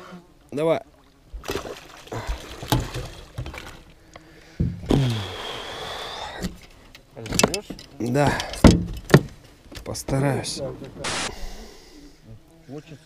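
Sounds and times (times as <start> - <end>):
knocks and splashes: 1.3 - 5.4, 6.4 - 10.2
steady hiss of net leaving water: 5.2 - 6.4.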